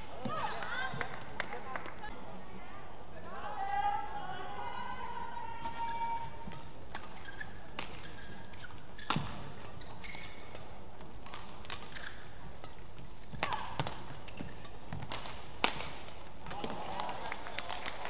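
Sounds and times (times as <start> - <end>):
shoes squeaking on court: 5.8 - 15.5
racket hitting shuttlecock: 6.5 - 17.1.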